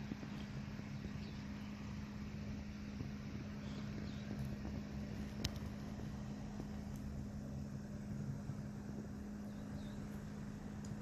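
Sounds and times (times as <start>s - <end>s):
faint background rumble: 0.0s - 11.0s
low machine hum: 0.0s - 11.0s.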